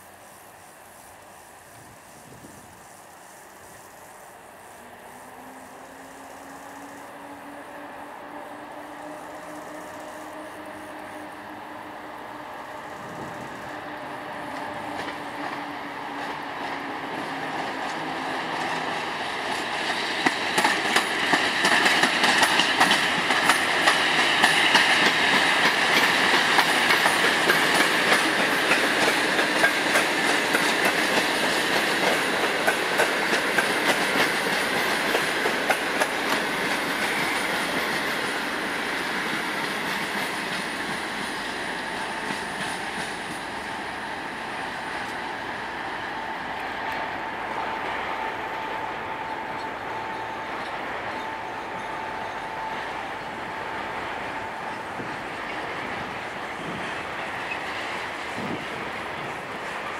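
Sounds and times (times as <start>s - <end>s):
train passing: 0.0s - 59.9s
wheels clicking over rail joints: 13.0s - 45.8s.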